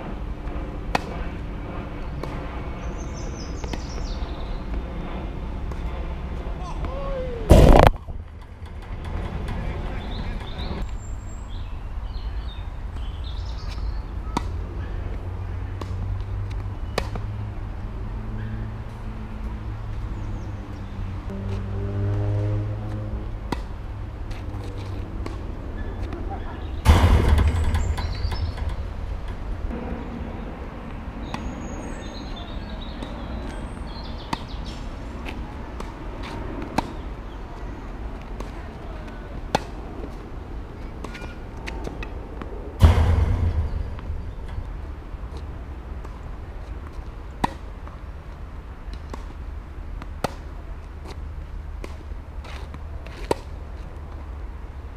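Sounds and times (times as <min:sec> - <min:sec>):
steady low rumble: 0:00.0 - 0:16.6, 0:22.8 - 0:53.0
birds chirping: 0:02.0 - 0:04.7, 0:09.5 - 0:15.0, 0:27.5 - 0:35.0
rackets striking tennis ball: 0:06.8 - 0:10.9, 0:22.8 - 0:29.8, 0:31.2 - 0:37.1, 0:38.2 - 0:40.2, 0:40.9 - 0:48.1, 0:50.0 - 0:51.2
tennis racket hitting ball: 0:22.9 - 0:26.2.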